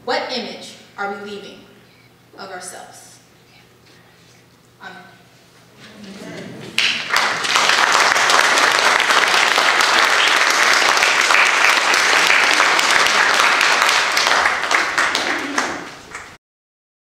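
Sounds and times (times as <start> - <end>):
crowd clapping: 6.6 - 16.4.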